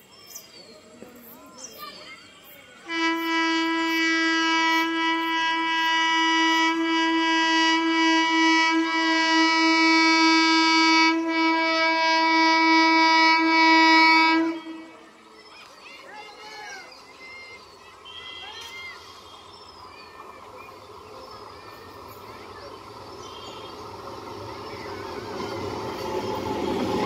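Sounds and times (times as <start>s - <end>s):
train horn blast: 2.9s - 15.1s.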